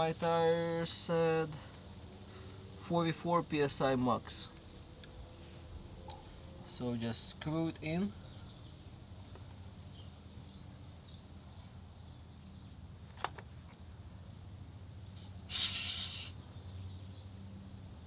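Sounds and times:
air hissing from tire valve: 15.2s - 16.4s.

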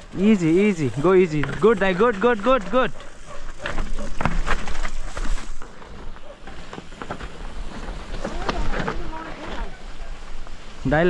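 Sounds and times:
mountain bike rattling on dirt trail: 0.0s - 11.0s.

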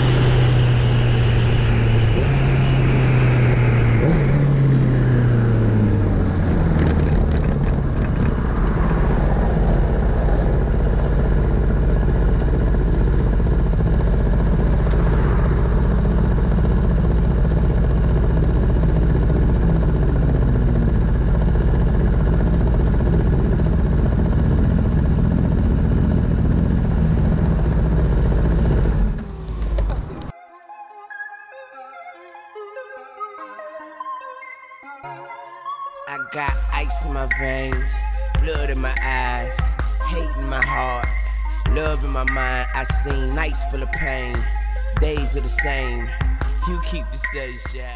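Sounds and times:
passing vehicles: 0.0s - 30.3s, 36.5s - 47.9s
motorcycle engine idling: 9.3s - 30.3s, 36.8s - 47.7s.

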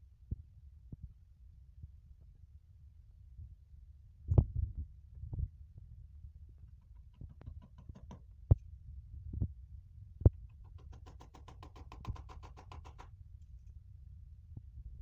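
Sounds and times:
hammer knocking on plastic panel: 6.8s - 8.3s, 10.5s - 13.1s.

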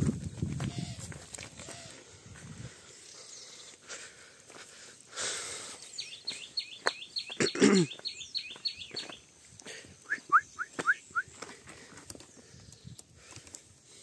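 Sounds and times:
low falling bird call: 5.8s - 9.3s
bird short rising whistles: 10.1s - 11.3s
scattered clicks: 12.0s - 13.7s.

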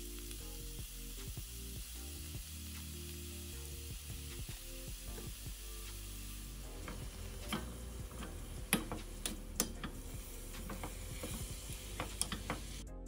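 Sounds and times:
meat sizzling in a pan: 0.0s - 12.8s
spatula scraping and knocking pan: 6.8s - 12.8s.

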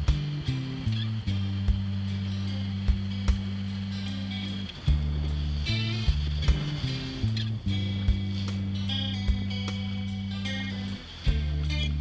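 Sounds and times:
guitar: 0.0s - 12.0s
low bass note: 0.0s - 12.0s
light percussive hits: 4.4s - 10.6s.

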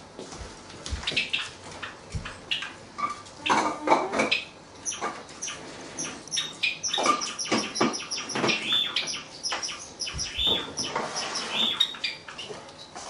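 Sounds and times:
sparrow singing: 4.3s - 12.5s.

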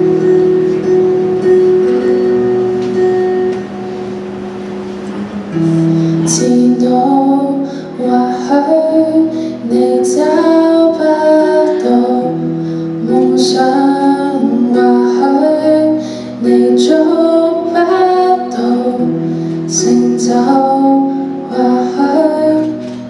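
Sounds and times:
acoustic guitar: 0.0s - 23.0s
woman singing pop ballad: 6.2s - 23.0s.

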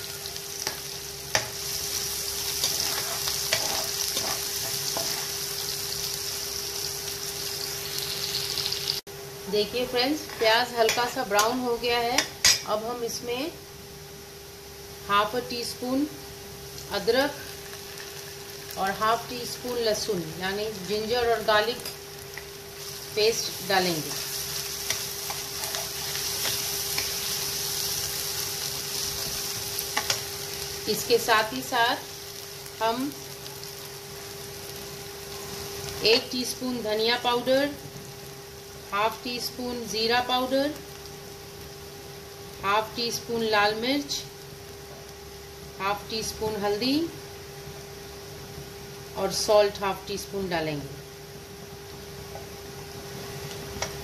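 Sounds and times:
onion sizzling in oil: 0.0s - 54.0s
spatula scraping a pan: 2.5s - 5.4s, 24.2s - 27.4s.

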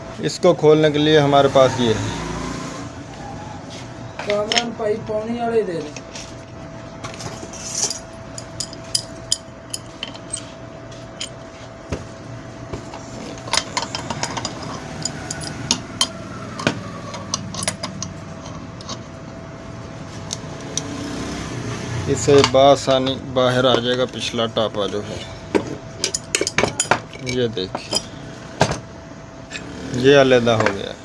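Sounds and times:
wrench clicking and clinking: 7.7s - 10.5s, 13.4s - 19.0s.

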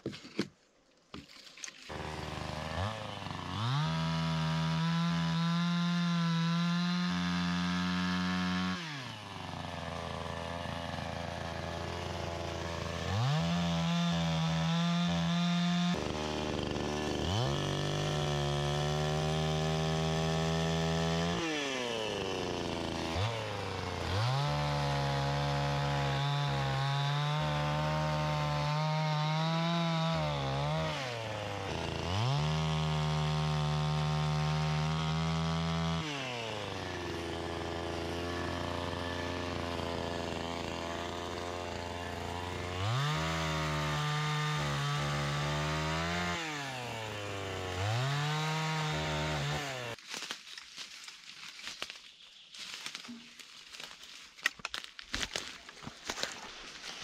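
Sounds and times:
chainsaw revving and idling: 1.9s - 51.8s, 54.8s - 57.0s.

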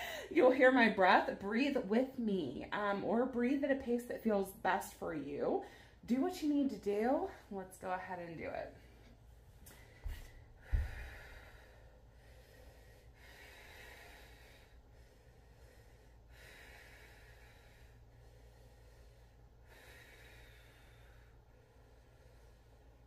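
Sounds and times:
woman breathing slowly: 0.0s - 0.3s, 5.6s - 6.0s, 8.8s - 23.0s.

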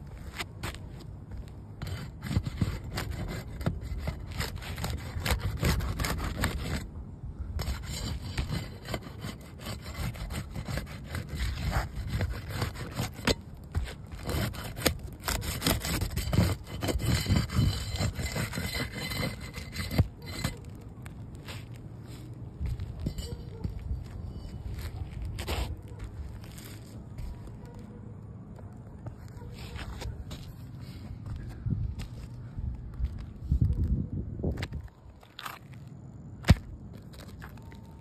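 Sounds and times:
pry bar scraping under shingles: 0.0s - 27.8s.

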